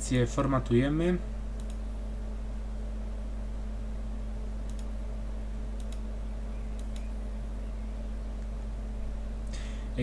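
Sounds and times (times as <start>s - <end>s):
steady low hum: 0.0s - 10.0s
computer mouse clicking: 1.6s - 1.8s, 4.6s - 4.9s, 5.8s - 6.1s, 6.7s - 7.1s.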